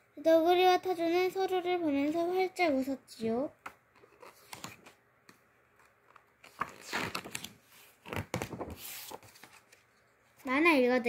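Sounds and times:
paper rustling: 4.0 - 5.0, 5.8 - 10.5
page turning swishes: 5.8 - 9.9.

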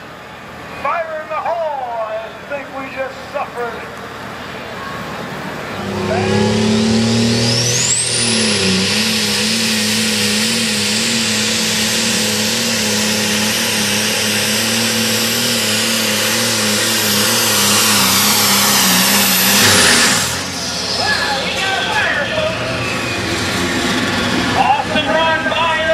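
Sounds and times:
diesel engine drone: 0.0 - 25.9
turbo whine: 5.3 - 24.8.

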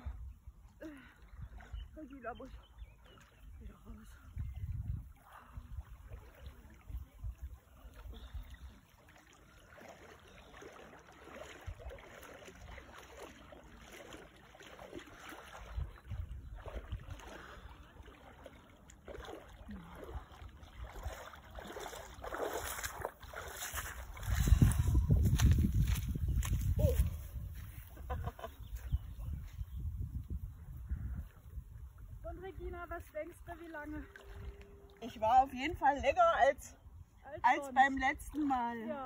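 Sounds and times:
person wading through water: 0.0 - 39.0
wind buffeting microphone: 1.3 - 8.8, 15.6 - 17.6, 20.8 - 38.8.

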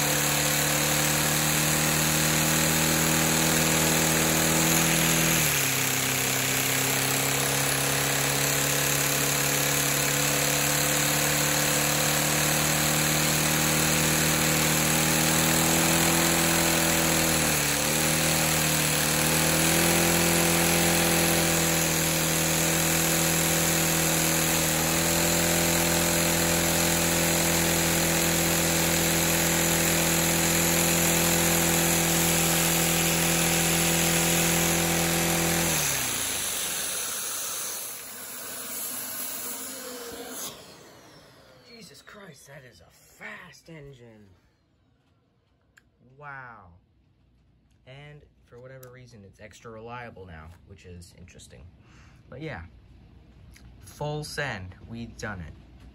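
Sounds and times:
toy vacuum engine buzzing whine: 0.0 - 42.2.

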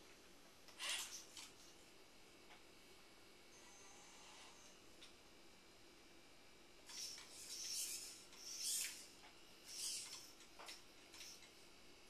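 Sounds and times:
robotic arm motors whirring: 0.8 - 1.6, 6.9 - 11.5.

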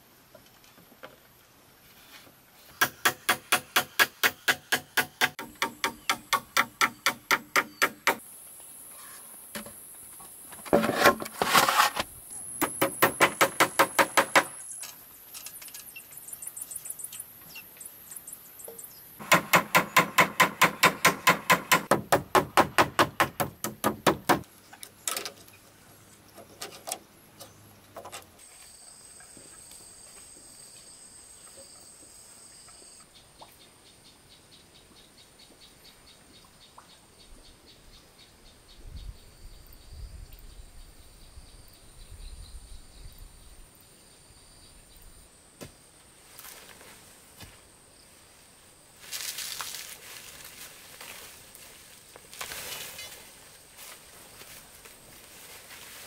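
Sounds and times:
rustling and scraping: 0.4 - 2.8, 8.9 - 12.1, 49.0 - 56.0
hammer blows on roofing sheet: 12.6 - 14.6, 19.2 - 24.5.

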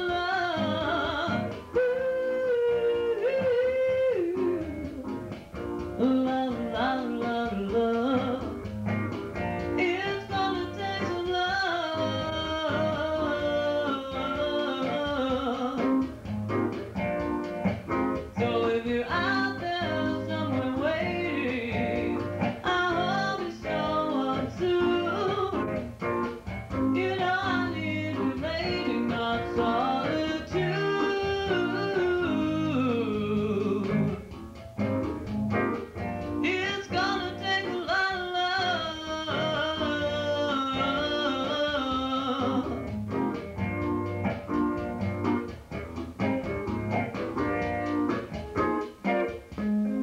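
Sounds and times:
woman singing with band: 0.0 - 8.7, 9.4 - 16.2, 18.2 - 26.0, 26.7 - 34.3, 35.7 - 42.9
guitar: 0.0 - 50.0.

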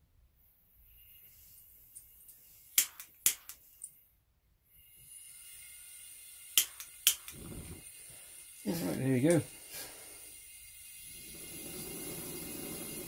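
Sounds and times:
faint gas hiss from burner: 4.7 - 13.0
lighter clicking: 6.6 - 7.4.

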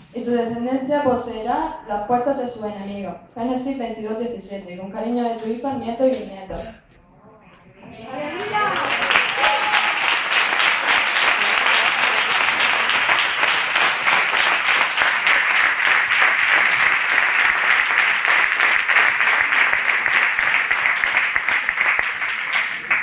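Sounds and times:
crowd applauding: 8.2 - 23.0.

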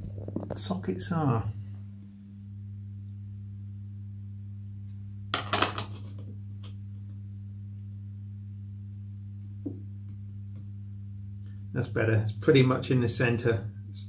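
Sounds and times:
steady low hum: 0.0 - 14.0.

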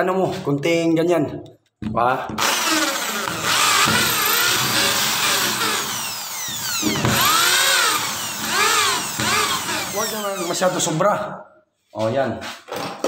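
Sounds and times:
electric drill whining and grinding: 2.4 - 11.0.

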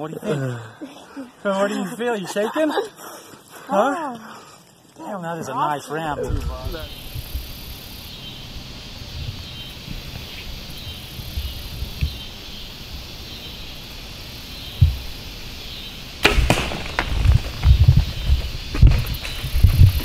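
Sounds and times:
steady outdoor hum: 0.0 - 20.0
gunshot crack: 16.2 - 17.7
deer scuffling: 16.2 - 20.0.

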